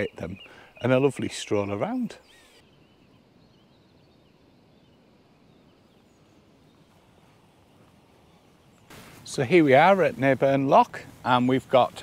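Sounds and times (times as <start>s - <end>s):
faint bird chirps: 0.0s - 8.9s.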